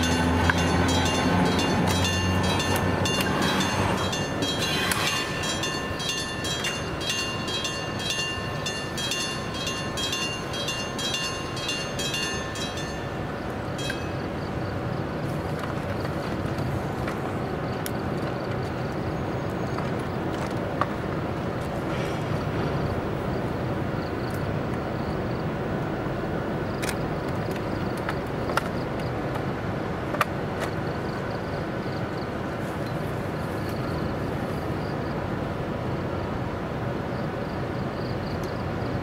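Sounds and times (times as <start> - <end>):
locomotive mechanical hum: 0.0 - 39.0.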